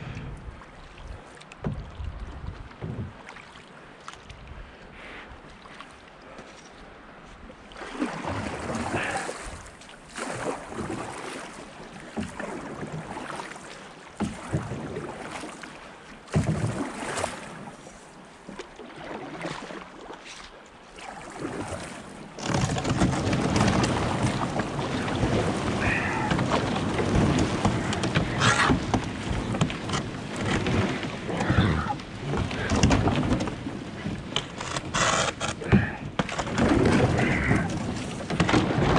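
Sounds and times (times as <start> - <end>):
wind on microphone: 0.0 - 3.2, 22.8 - 38.9
canoe paddle strokes splashing: 0.0 - 38.9
rushing water: 0.0 - 38.9.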